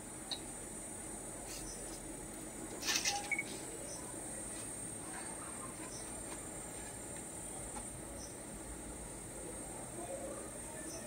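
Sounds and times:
crickets droning: 0.0 - 11.0.

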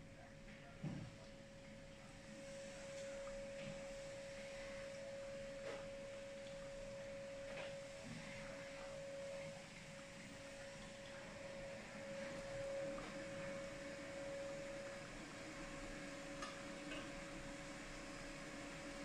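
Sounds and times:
steady humming tone: 0.0 - 19.0
water trickling onto coffee grounds: 5.8 - 13.7.

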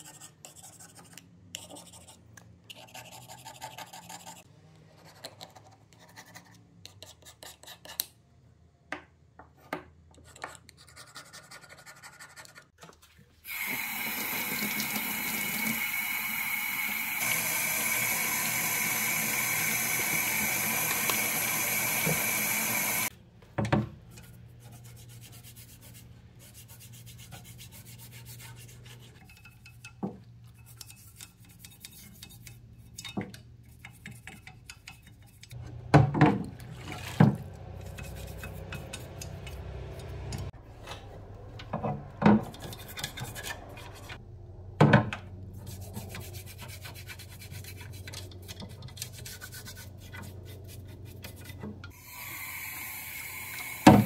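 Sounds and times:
tap running water into sink: 16.8 - 23.1, 53.2 - 54.0
scrubbing in sink: 33.8 - 40.2
razor scraper scraping metal: 37.8 - 40.5.

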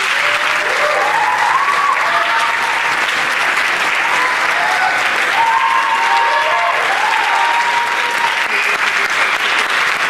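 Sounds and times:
voices cheering and whooping: 0.0 - 2.9, 4.0 - 9.0
audience applauding: 0.0 - 10.0.

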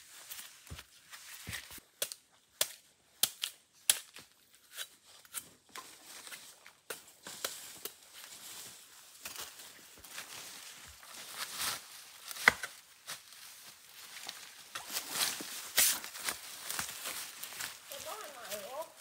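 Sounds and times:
dry twigs snapping: 12.2 - 13.3.

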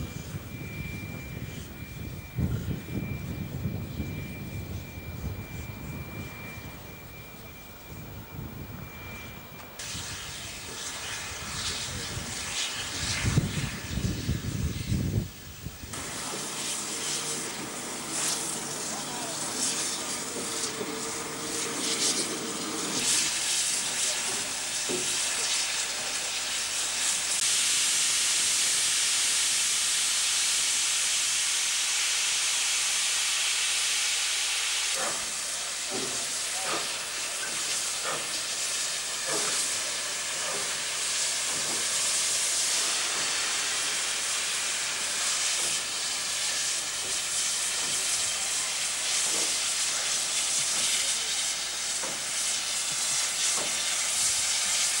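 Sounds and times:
steam locomotive venting steam: 0.0 - 55.0.

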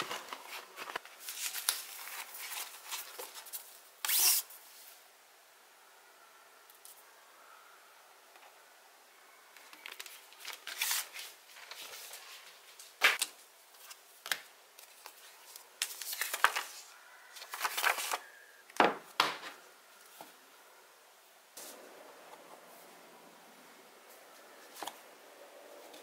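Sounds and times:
plastic film and paper rustling: 0.0 - 4.4, 9.6 - 18.4.

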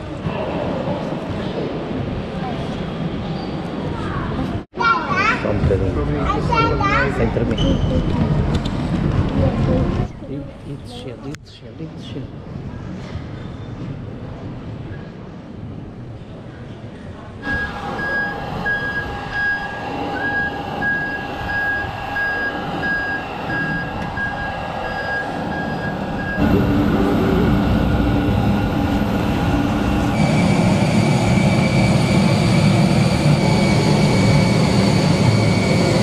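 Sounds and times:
jet airliner whine and rumble: 5.5 - 11.4, 12.4 - 36.0
high beeping tone: 17.4 - 36.0.

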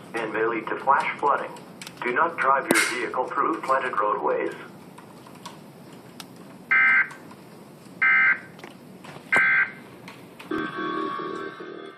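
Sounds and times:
shrill warbling digital tones: 10.5 - 11.9.

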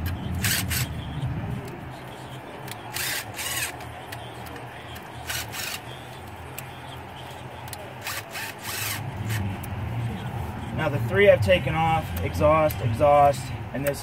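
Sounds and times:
cordless drill spinning: 0.4 - 0.9, 2.9 - 3.8, 5.2 - 5.8, 8.0 - 9.4.

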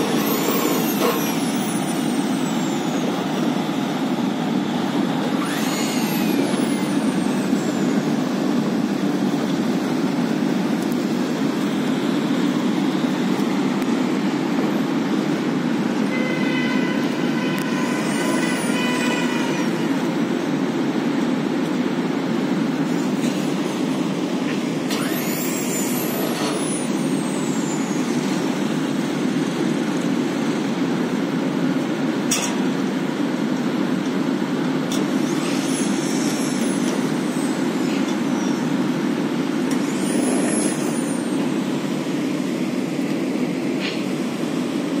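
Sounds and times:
ventilator fan air rush: 0.0 - 16.1
faint high whistle: 0.1 - 3.5, 16.1 - 19.8, 24.9 - 28.7, 39.8 - 41.5.

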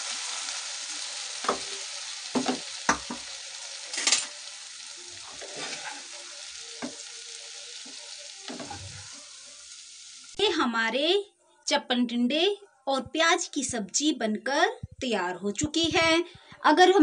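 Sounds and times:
vegetables sizzling in a pan: 0.0 - 10.6
wooden spatula scraping a pan: 5.2 - 7.0, 7.9 - 9.2.

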